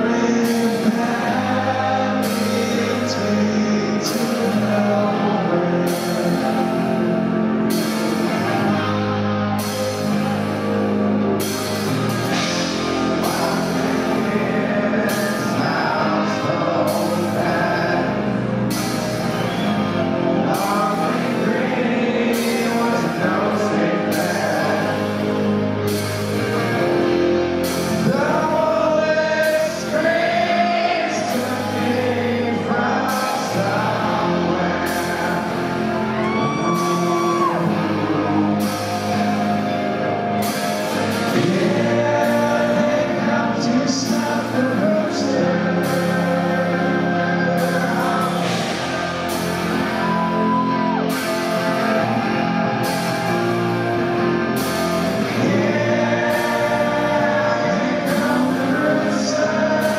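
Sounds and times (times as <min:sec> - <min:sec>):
man singing: 0:00.0 - 0:10.4, 0:11.8 - 0:59.9
drums beating: 0:00.0 - 0:25.2, 0:25.8 - 0:59.9
electric guitars: 0:00.0 - 0:59.9.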